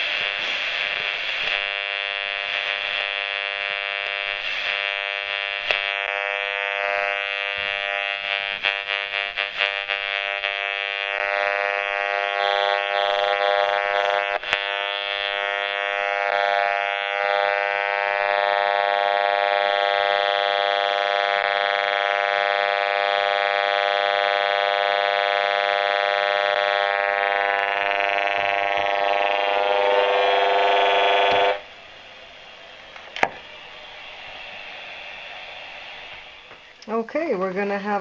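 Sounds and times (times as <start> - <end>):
rf meter buzz: 0.0 - 37.0.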